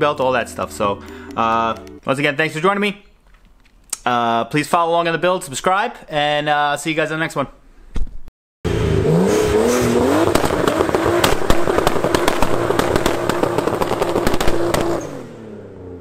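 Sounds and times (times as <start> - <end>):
car engine revving: 8.7 - 16.0
exhaust pops crackling: 9.6 - 15.3
tyres spinning: 9.8 - 15.2.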